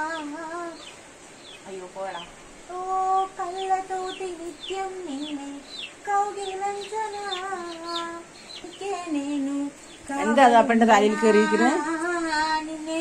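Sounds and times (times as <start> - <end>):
high falling bird chirps: 0.0 - 10.4
person humming a slow tune: 11.1 - 13.0.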